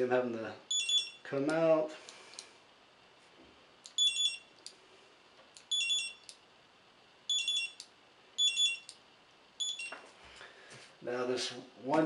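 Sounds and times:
high-pitched scanner beeps: 0:00.7 - 0:01.2, 0:04.0 - 0:04.5, 0:05.7 - 0:06.3, 0:07.3 - 0:07.8, 0:08.4 - 0:08.9, 0:09.6 - 0:10.0.

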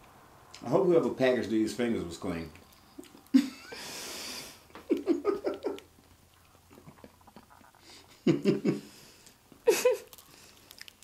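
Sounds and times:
person laughing: 0:03.3 - 0:04.0, 0:04.7 - 0:05.9, 0:08.0 - 0:08.9, 0:09.6 - 0:10.1.

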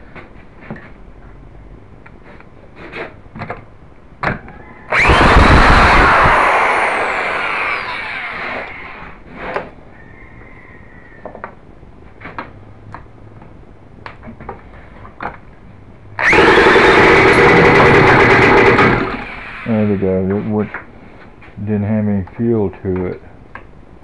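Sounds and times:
model engine fan whirring: 0:04.9 - 0:08.9, 0:16.2 - 0:19.9.

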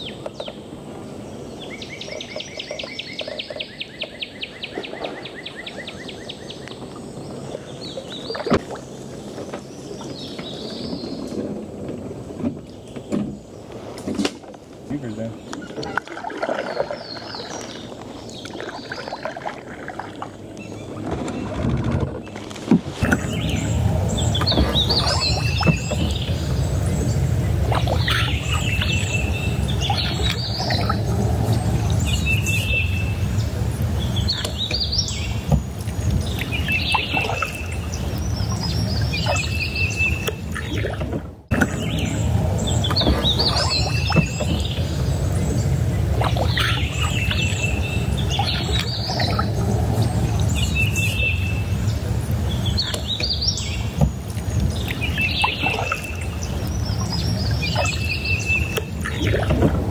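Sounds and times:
birds trilling and whistling: 0:00.0 - 0:11.4, 0:14.9 - 0:19.5, 0:23.0 - 0:59.9
steady low rumble: 0:19.8 - 0:59.9.

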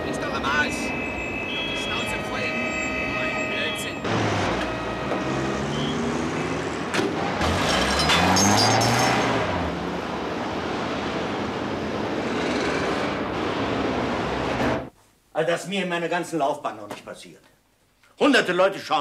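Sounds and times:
street traffic: 0:00.0 - 0:15.0
engine revving: 0:01.9 - 0:14.9.

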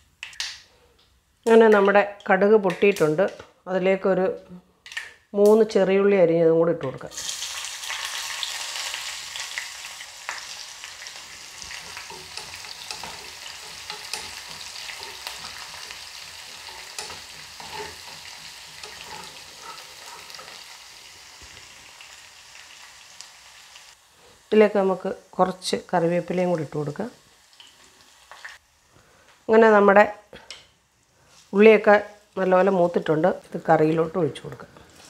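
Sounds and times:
shallots sizzling in oil: 0:07.1 - 0:30.1, 0:30.8 - 0:35.0.

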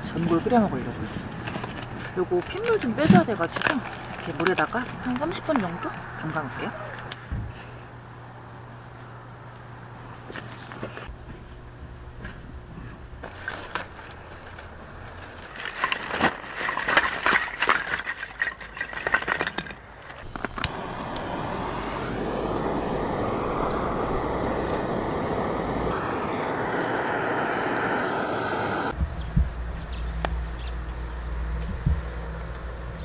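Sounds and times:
torch flame hissing: 0:20.2 - 0:29.0.

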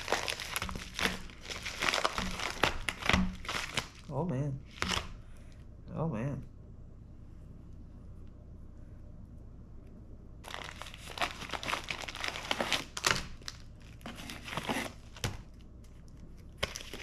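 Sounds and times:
plastic mailer tearing and crinkling: 0:00.0 - 0:04.1, 0:04.7 - 0:05.1, 0:10.4 - 0:15.6, 0:16.5 - 0:17.0.

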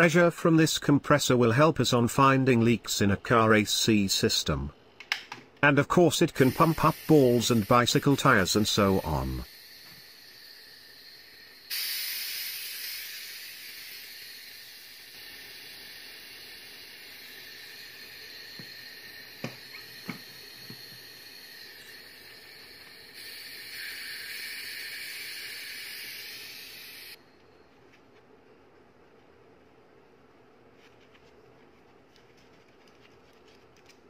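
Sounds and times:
compressed air hissing from hose: 0:06.4 - 0:27.2.

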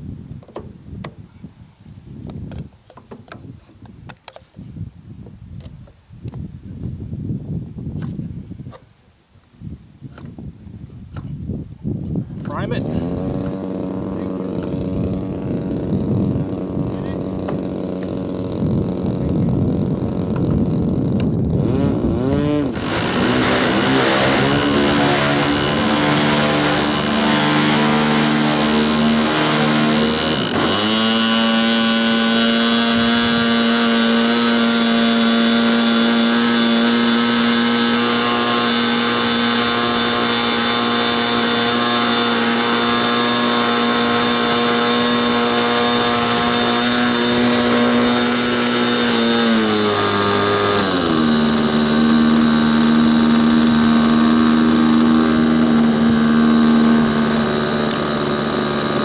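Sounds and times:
electric starter spinning: 0:12.5 - 0:59.0
model airplane engine running: 0:12.5 - 0:59.0.

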